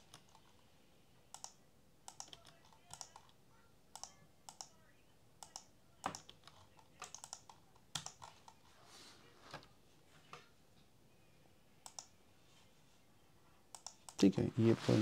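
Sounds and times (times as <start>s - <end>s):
keyboard typing: 0.0s - 0.6s, 1.3s - 4.8s, 5.4s - 8.7s, 11.8s - 12.1s, 13.7s - 14.3s.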